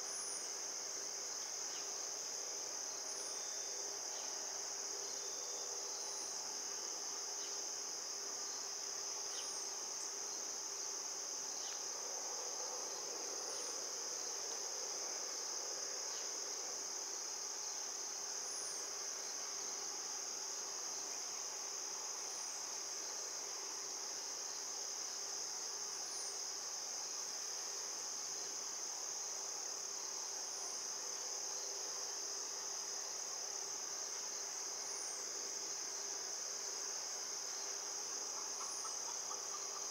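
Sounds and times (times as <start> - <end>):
insect trill: 0.0 - 39.9.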